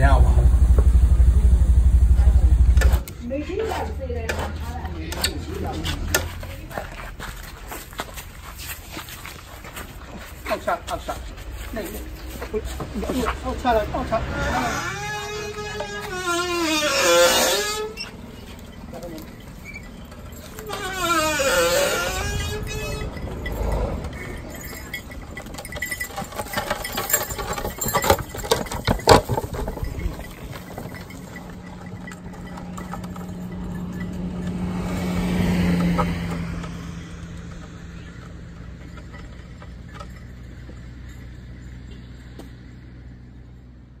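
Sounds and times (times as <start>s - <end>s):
vehicle engine passing by: 0.0s - 7.4s, 11.8s - 25.5s, 31.6s - 39.4s
sharp knocks and clatter: 15.6s - 40.8s.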